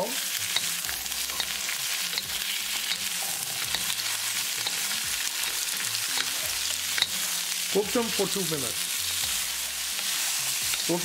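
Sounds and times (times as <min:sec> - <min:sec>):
vegetables sizzling in hot oil: 0:00.0 - 0:11.0
spatula scraping and tapping pan: 0:04.6 - 0:07.4.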